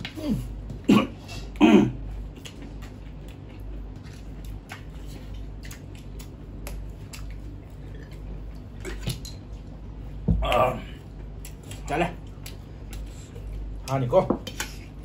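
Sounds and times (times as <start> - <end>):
chewing: 1.4 - 9.8
fingers mixing food on steel plates: 11.4 - 15.0.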